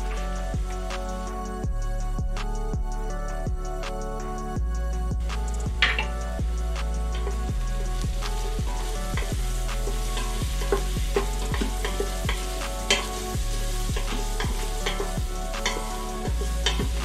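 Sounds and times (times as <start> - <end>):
onion sizzling in a pot: 0.0 - 2.4, 3.0 - 17.0
wooden spoon scraping a pot: 7.2 - 17.0.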